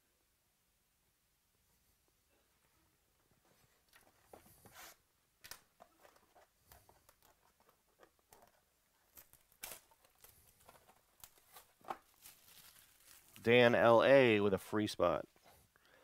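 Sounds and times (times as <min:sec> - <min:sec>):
plastic wrap crinkling and tearing: 0:07.0 - 0:13.6.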